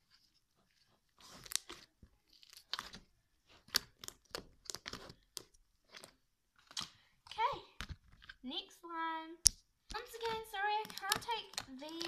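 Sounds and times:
slime squishing crackles and pops: 1.2 - 7.0, 9.4 - 12.0.

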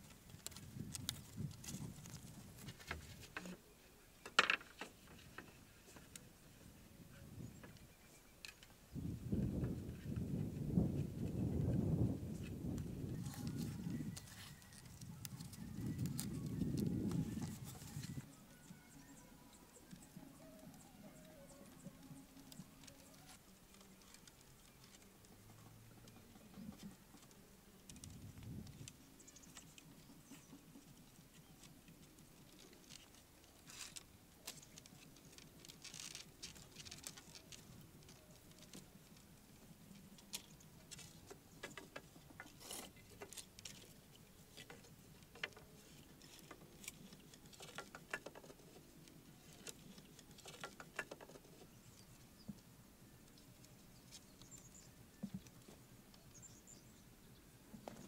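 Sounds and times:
bamboo poles clicking together: 4.2 - 6.2, 13.2 - 18.3, 19.8 - 51.7.

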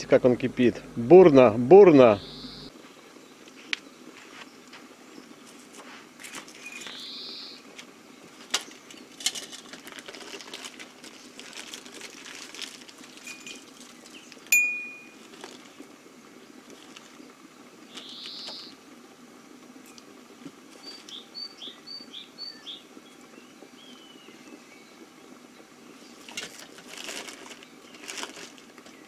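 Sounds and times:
samovar boiling: 0.0 - 29.0
bird calling: 2.1 - 2.7, 6.7 - 7.6, 17.9 - 18.8.

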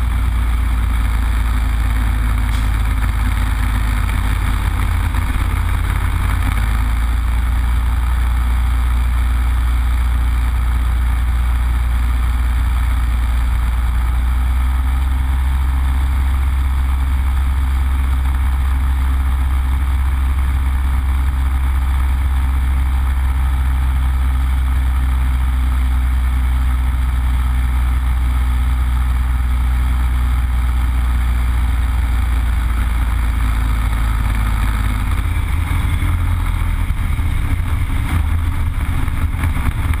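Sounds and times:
propeller plane engine droning: 25.8 - 40.0.

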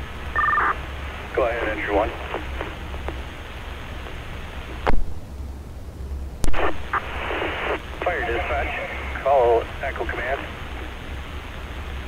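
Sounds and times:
burst of static: 0.0 - 5.0, 6.4 - 11.4
radio hiss and hum: 0.0 - 5.2, 6.4 - 12.0.

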